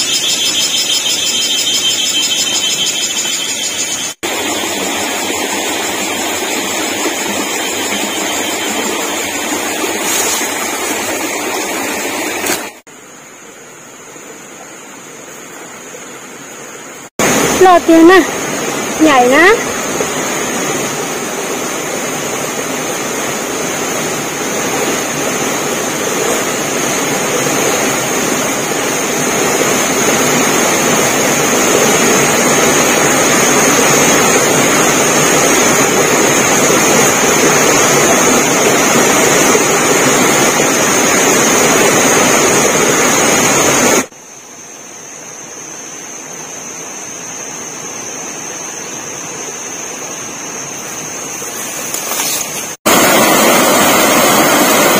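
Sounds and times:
high-pitched tone: 0:00.0 - 0:04.4
stream water rushing: 0:01.9 - 0:44.2, 0:45.0 - 0:54.9.

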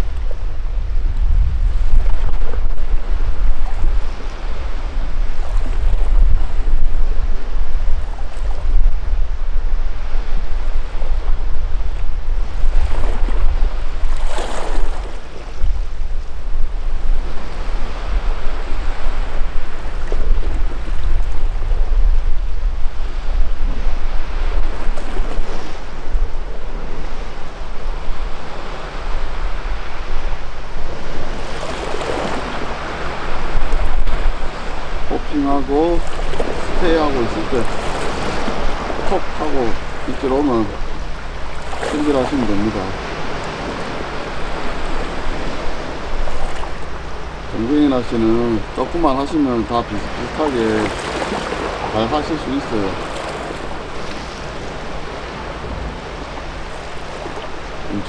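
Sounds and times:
wind rumbling on microphone: 0:00.0 - 0:58.0
waves washing against rocks: 0:31.1 - 0:58.0.

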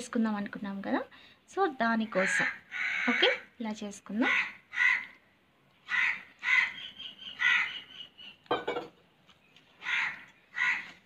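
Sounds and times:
crow cawing: 0:02.1 - 0:03.4, 0:04.2 - 0:05.2, 0:05.8 - 0:07.8, 0:09.8 - 0:11.0.

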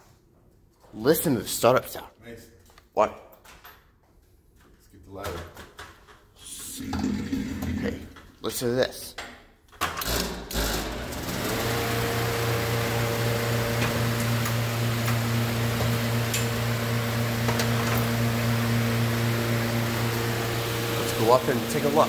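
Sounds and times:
exhaust fan running: 0:10.6 - 0:22.0.

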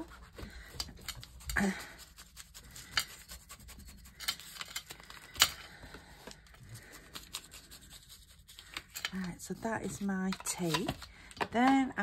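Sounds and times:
paper crinkling and rustling: 0:00.0 - 0:11.2.

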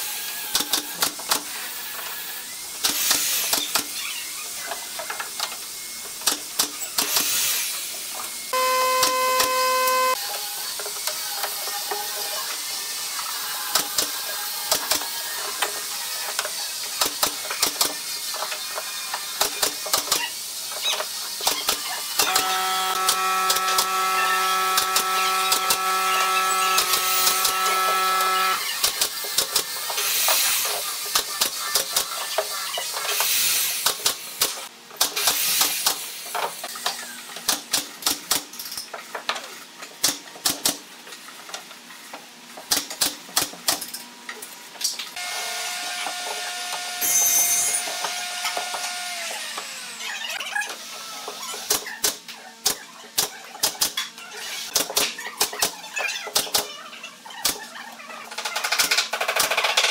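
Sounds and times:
steady machine hum: 0:08.5 - 0:10.2
high tone sinking in pitch: 0:08.6 - 0:10.2.

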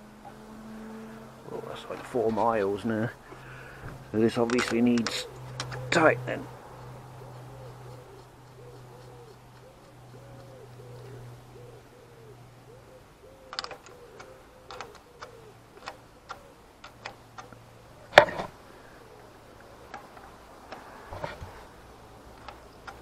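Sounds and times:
spanner clicking on metal: 0:04.4 - 0:05.8
bird cooing: 0:05.0 - 0:21.7.

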